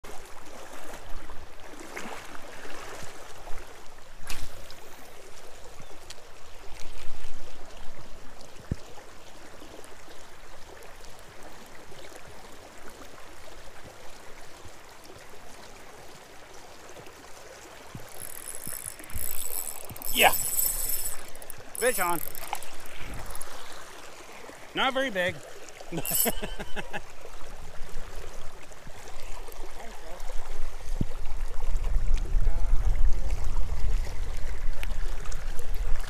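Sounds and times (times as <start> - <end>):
rain on a flowing river: 0.0 - 36.0
fishing rod knocks: 18.0 - 23.5
spinning reel whirring: 18.0 - 23.7, 26.0 - 26.6.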